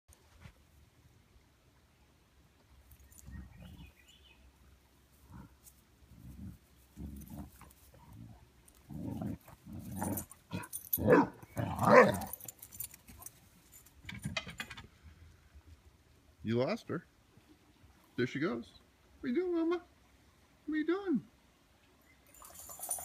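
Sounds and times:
dogs growling: 5.2 - 12.5.

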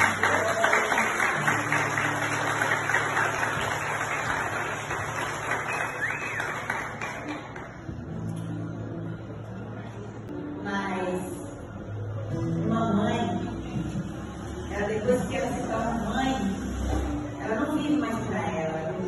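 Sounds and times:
audience applauding: 0.0 - 7.9.

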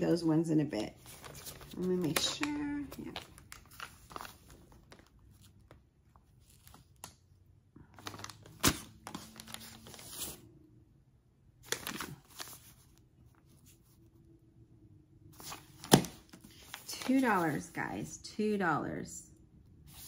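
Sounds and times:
paper rustling and crinkling: 0.8 - 7.1, 7.9 - 10.4, 11.6 - 14.0, 15.3 - 17.8.

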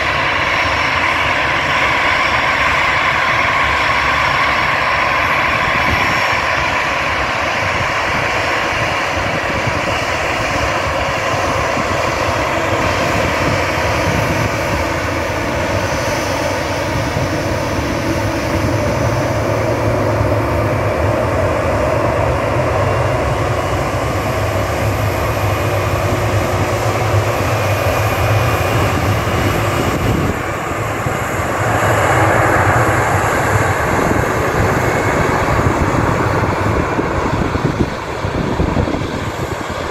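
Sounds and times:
jet engines whine and rumble: 0.0 - 39.9.

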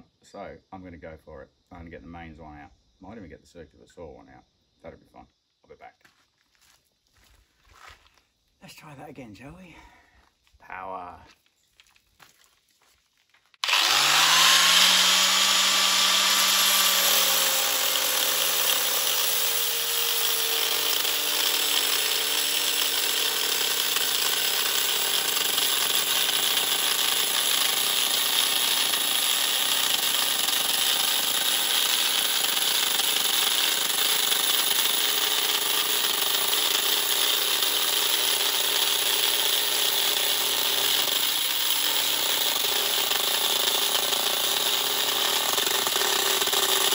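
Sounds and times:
angle grinder cutting metal: 13.6 - 46.9.

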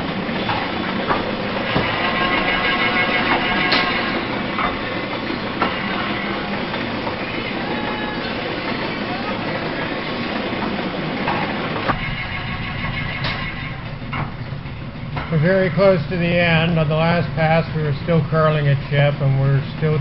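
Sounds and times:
sharp knocks: 0.5 - 2.3, 11.3 - 15.4.

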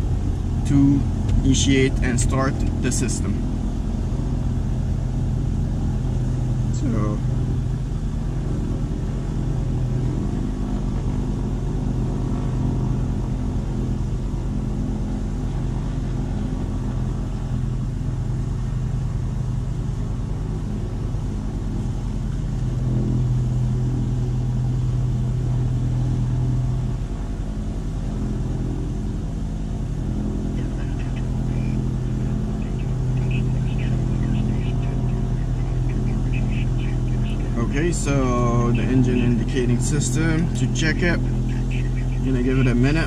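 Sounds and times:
low mechanical drone: 0.0 - 43.0
held pitched tones: 30.4 - 43.0.

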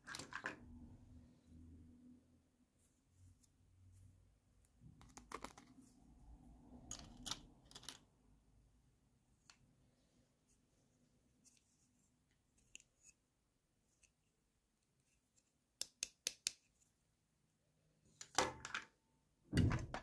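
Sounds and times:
plastic toys clicking and clattering: 0.0 - 0.6, 6.9 - 8.1.

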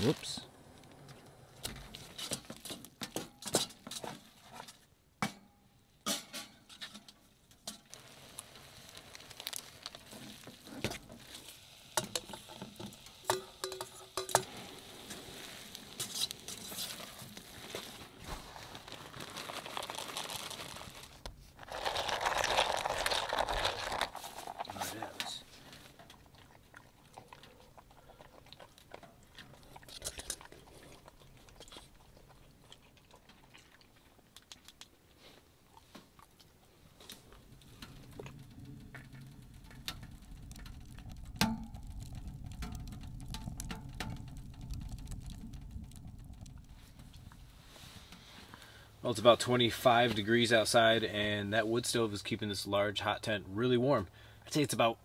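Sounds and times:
utensil scraping metal pot: 7.6 - 18.4.

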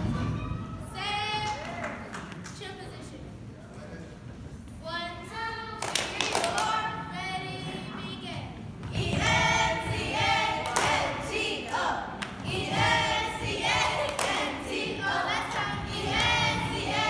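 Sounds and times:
hand claps: 5.8 - 6.7, 10.6 - 11.1, 14.0 - 14.5
girls chanting in unison: 8.9 - 17.0.

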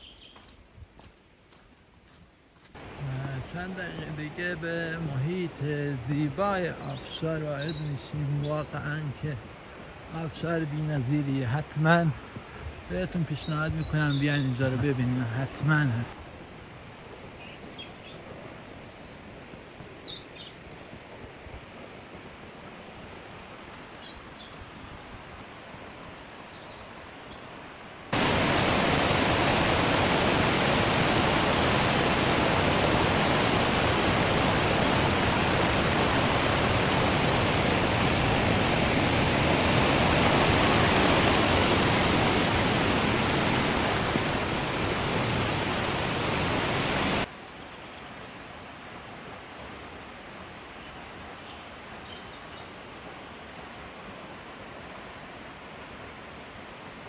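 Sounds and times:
bird chirps: 0.0 - 0.5, 13.1 - 14.6
mountain stream rushing over boulders: 2.6 - 57.0.

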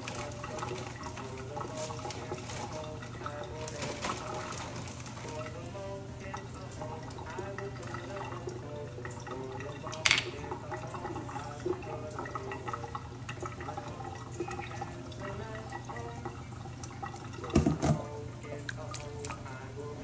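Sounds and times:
tap running into a sink: 9.8 - 10.8, 16.8 - 19.4
dishes knocking: 10.0 - 10.4, 17.5 - 18.0.

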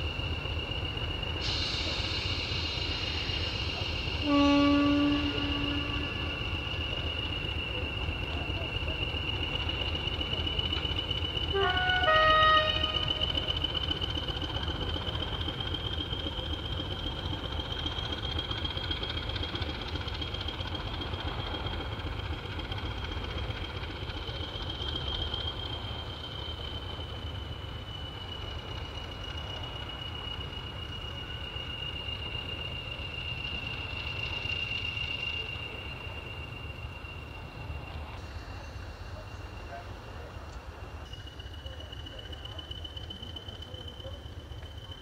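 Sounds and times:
diesel locomotive engine rumbling: 0.0 - 45.0
steady high whine: 0.0 - 45.0
two-tone train horn: 4.2 - 6.4, 11.5 - 13.2.

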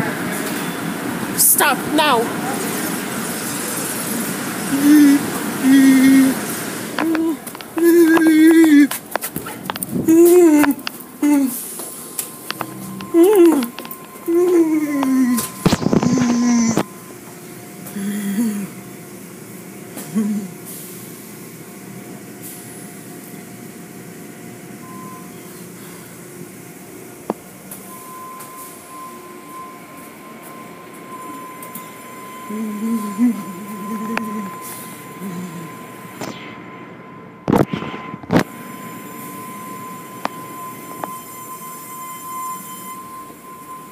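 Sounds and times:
faint steady whine: 0.0 - 43.9
car wash machinery hiss: 0.1 - 7.0
short beep: 27.8 - 43.9.

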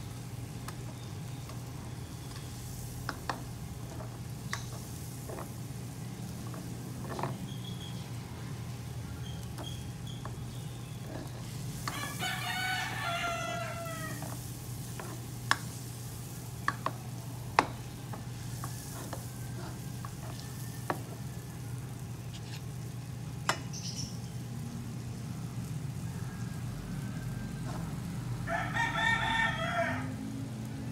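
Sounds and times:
butter sizzling in a wok: 0.0 - 30.1
rooster crowing: 11.8 - 14.4, 26.0 - 30.4.

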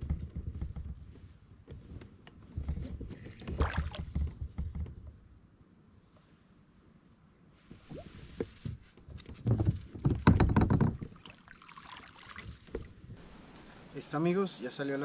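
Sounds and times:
fish splashing at surface: 3.4 - 4.0, 11.2 - 12.8
knocks: 9.5 - 11.1.

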